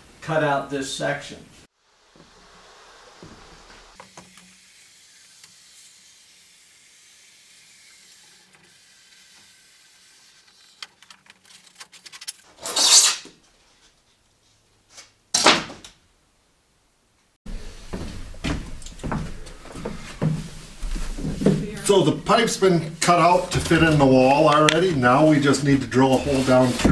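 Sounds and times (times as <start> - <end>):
faint steady hiss: 0.0 - 10.8
foam rasping rubs: 2.0 - 11.0, 25.0 - 26.9.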